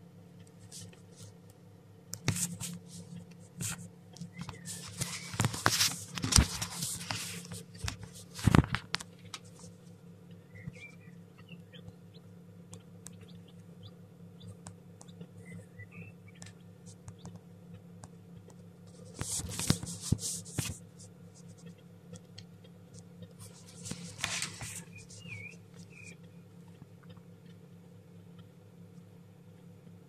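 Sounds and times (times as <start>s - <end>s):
steady low hum: 0.0s - 30.0s
faint chick peeps: 0.4s - 5.5s, 10.3s - 29.7s
chicks rustling in wood shavings: 0.5s - 1.6s, 2.2s - 10.0s, 10.6s - 12.2s, 18.8s - 21.8s, 22.9s - 27.1s.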